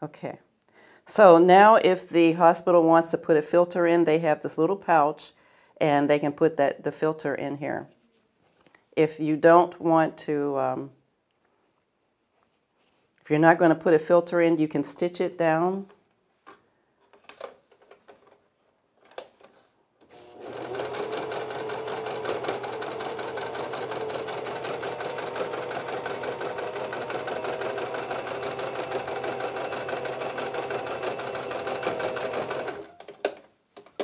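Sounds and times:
sewing machine stitching: 0:20.1 - 0:33.3.

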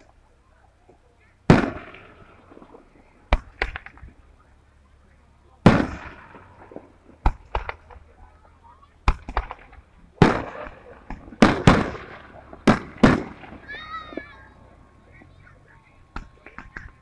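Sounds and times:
firework pops and crackles: 0:00.8 - 0:04.4, 0:05.6 - 0:08.2, 0:09.0 - 0:14.4, 0:16.1 - 0:17.0
firework shells bursting: 0:00.8 - 0:04.4, 0:05.6 - 0:08.2, 0:09.0 - 0:14.9.

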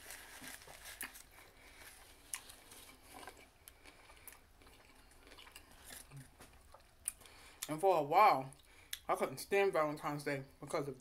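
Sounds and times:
chewing food: 0:00.4 - 0:07.8.

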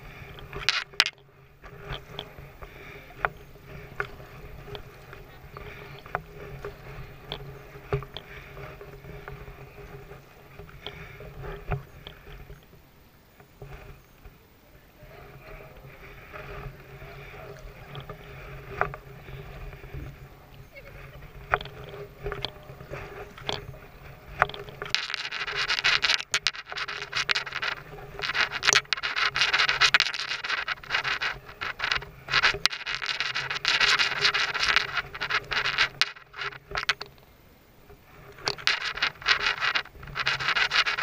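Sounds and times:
rough scraping and rubbing: 0:00.0 - 0:12.3, 0:20.8 - 0:37.2, 0:38.0 - 0:41.0.

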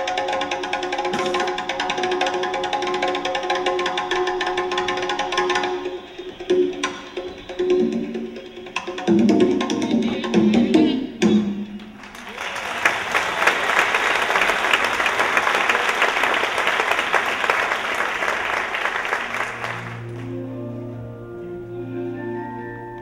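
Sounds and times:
audience applauding: 0:12.0 - 0:20.4
music with sustained notes: 0:19.1 - 0:23.0.

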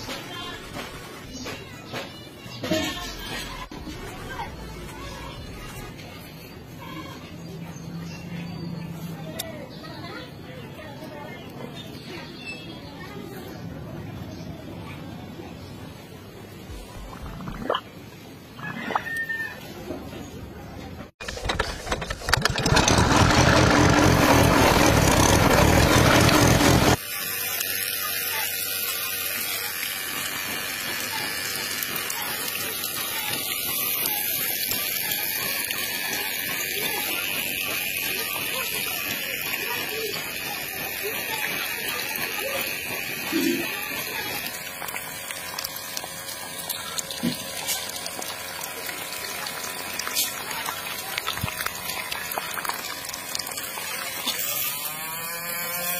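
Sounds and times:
small water pump motor running: 0:16.3 - 0:18.6, 0:21.2 - 0:55.9
water spraying: 0:22.4 - 0:55.9
water pouring into puddle: 0:22.6 - 0:55.1.

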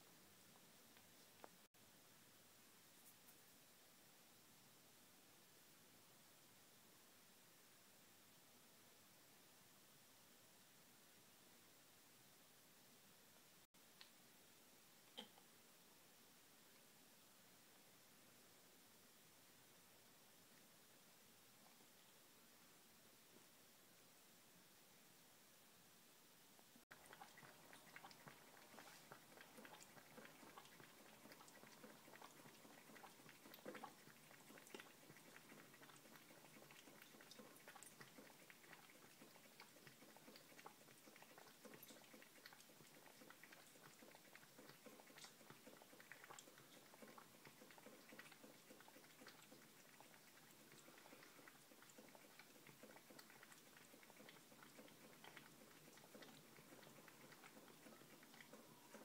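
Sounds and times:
cat lapping milk: 0:26.9 - 0:59.0.

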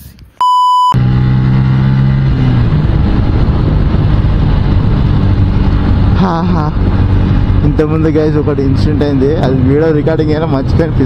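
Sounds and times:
short high-pitched beep: 0:00.4 - 0:01.0
motorcycle engine running: 0:01.0 - 0:11.0.

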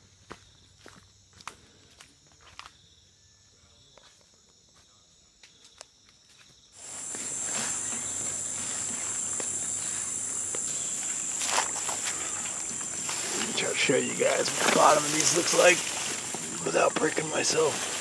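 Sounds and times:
footsteps on dirt trail: 0:00.0 - 0:02.8, 0:04.8 - 0:18.0
insect chorus: 0:00.0 - 0:18.0
background hiss: 0:06.8 - 0:18.0
high-pitched insect drone: 0:06.8 - 0:18.0.

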